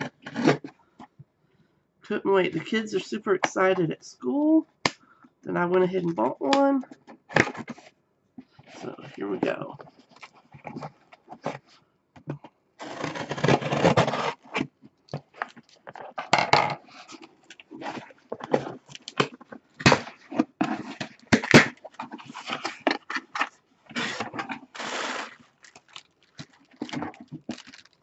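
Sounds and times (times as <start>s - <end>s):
cardboard tearing and crackling: 12.8s - 14.7s, 16.9s - 28.0s
plastic packet rustling: 20.2s - 28.0s.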